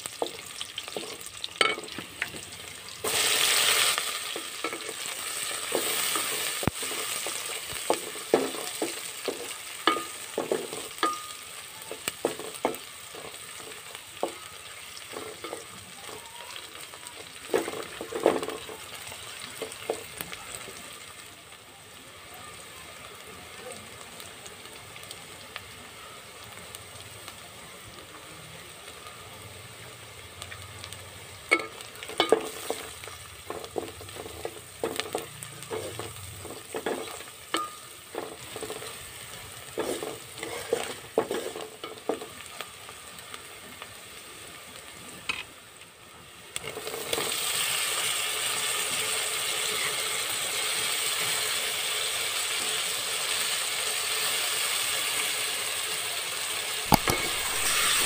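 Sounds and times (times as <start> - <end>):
loud sizzle of tomatoes in oil: 0.0 - 58.0
onions frying in oil: 0.0 - 58.0
wooden spatula knocking pot: 5.7 - 14.4.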